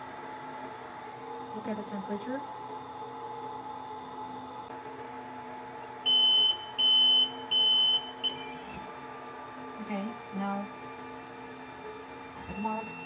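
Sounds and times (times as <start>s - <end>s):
steady machine hum: 0.0s - 13.0s
buzzer beeping: 6.1s - 8.6s.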